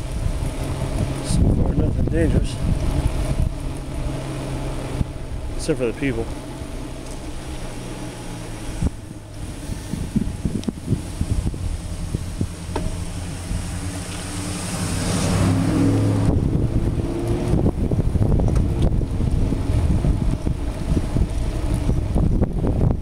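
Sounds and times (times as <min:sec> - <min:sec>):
wind buffeting microphone: 0:00.0 - 0:23.0
car passing by: 0:07.0 - 0:17.7
bicycle knocks and rattles: 0:12.7 - 0:13.1.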